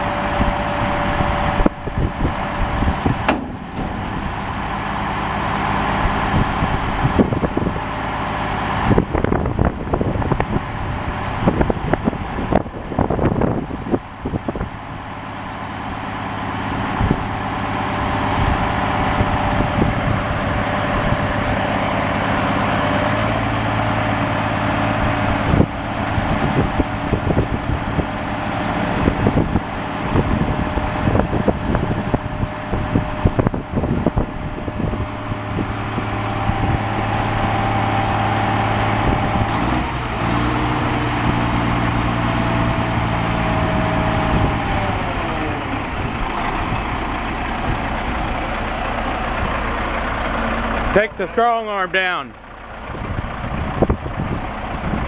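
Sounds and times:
diesel truck engine running: 0.0 - 55.0
sharp knocks: 3.2 - 4.4.

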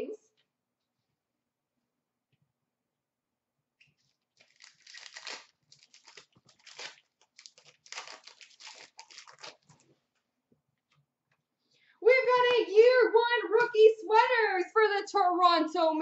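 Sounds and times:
wrapper tearing and crinkling: 4.0 - 9.9.

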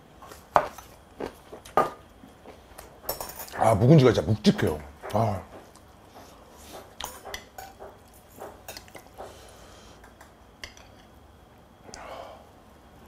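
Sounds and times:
metal utensils clinking on plate: 3.1 - 3.6, 7.0 - 9.1.

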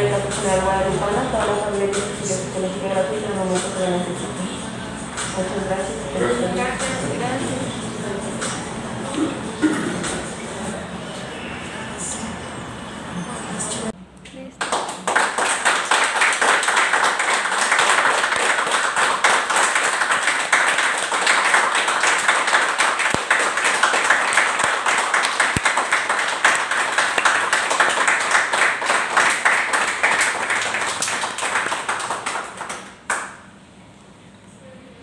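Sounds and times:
group of people clapping: 14.5 - 33.5.

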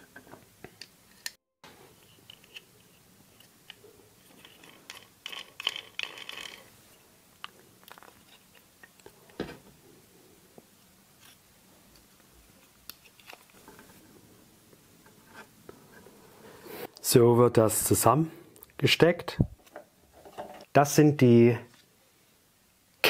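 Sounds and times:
plastic parts clicking together: 4.4 - 6.7.

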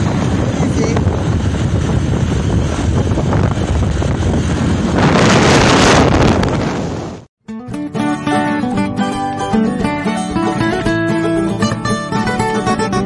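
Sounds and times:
wind buffeting phone microphone: 0.0 - 7.3.

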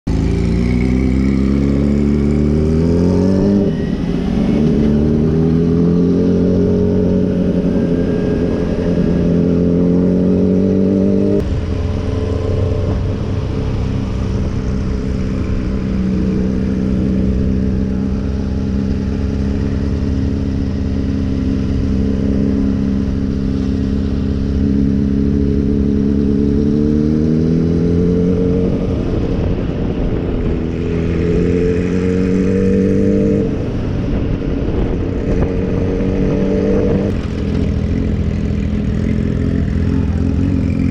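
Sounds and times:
motorcycle engine revving through gears: 0.0 - 40.9
wind rush: 27.1 - 38.3.

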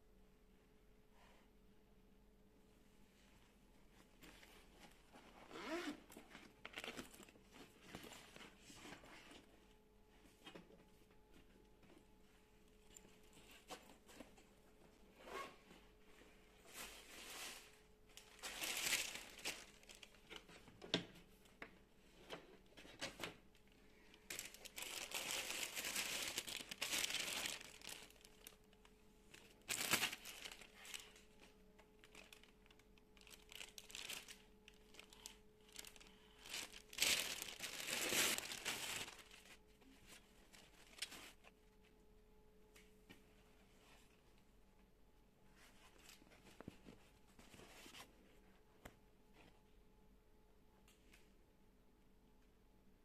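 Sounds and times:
plastic bag crinkling: 18.2 - 20.3, 24.2 - 31.3, 31.9 - 39.6.

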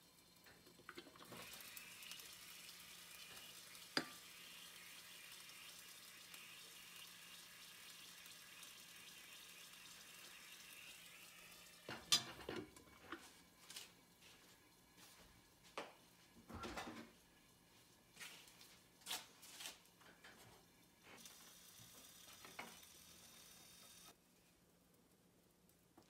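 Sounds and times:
batter sizzling in a frying pan: 0.0 - 16.4, 17.1 - 24.2.

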